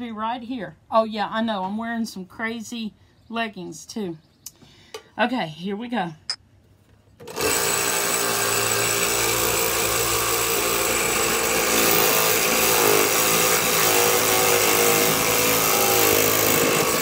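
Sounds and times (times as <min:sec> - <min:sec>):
toy scroll saw cutting wood: 0:07.2 - 0:17.0.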